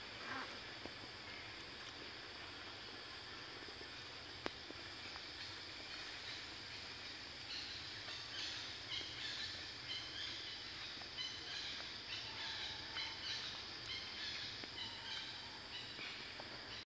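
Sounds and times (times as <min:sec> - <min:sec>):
steady high hiss: 0:00.0 - 0:16.8
small birds chirping: 0:05.0 - 0:16.2.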